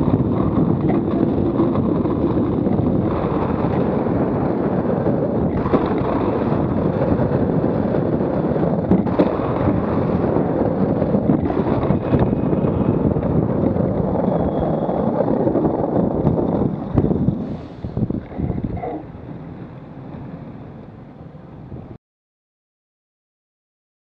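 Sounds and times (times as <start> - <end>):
wheels rolling on asphalt: 0.0 - 21.9
wind buffeting microphone: 0.0 - 22.0.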